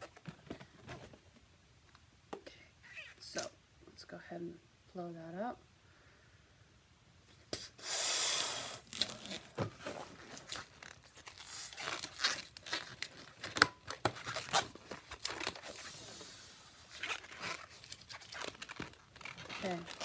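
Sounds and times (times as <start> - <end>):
rubbery balloon squeaks: 2.8 - 3.2, 8.8 - 15.8, 16.9 - 20.0
rush of air into balloon: 7.8 - 8.8.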